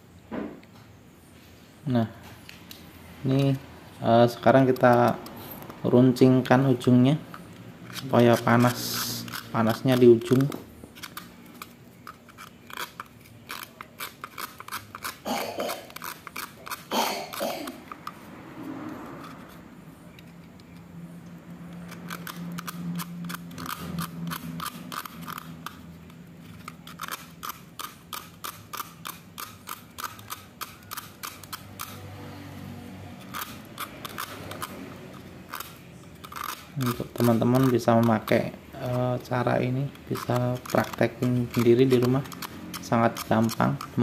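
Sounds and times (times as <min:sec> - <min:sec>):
dry scraping strokes: 0:07.8 - 0:17.4, 0:33.2 - 0:44.0.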